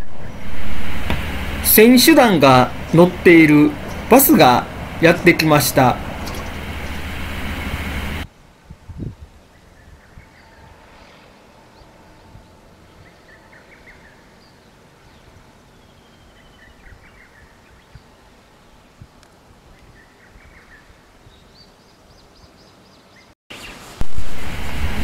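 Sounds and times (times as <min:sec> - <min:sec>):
birds chirping: 0:01.1 - 0:08.2.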